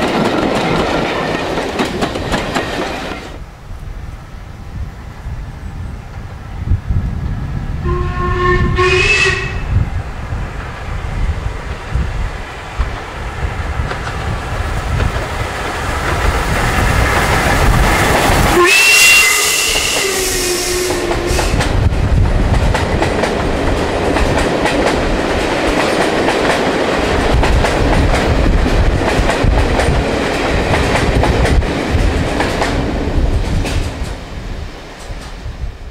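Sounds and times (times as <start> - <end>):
wheels clattering on rail: 0.0 - 3.4, 11.5 - 20.1
steam train passing: 0.0 - 35.9.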